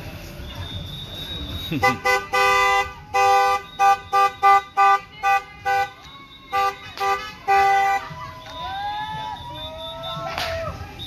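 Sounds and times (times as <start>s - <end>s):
car horn honking: 1.2s - 8.2s.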